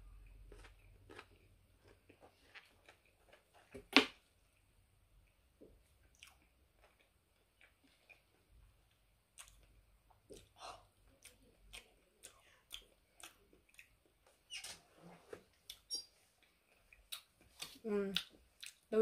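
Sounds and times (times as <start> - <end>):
wet chewing mouth sounds: 6.0 - 14.2, 15.6 - 18.9.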